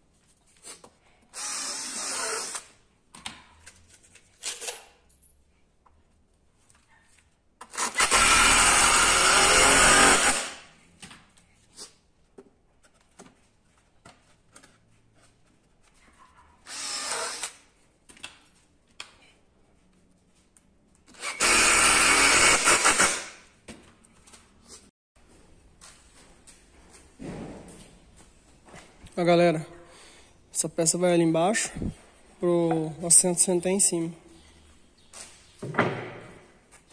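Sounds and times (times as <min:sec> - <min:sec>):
electric drill running: 0:01.4 - 0:02.6, 0:07.8 - 0:10.6, 0:16.7 - 0:17.6, 0:21.2 - 0:23.3.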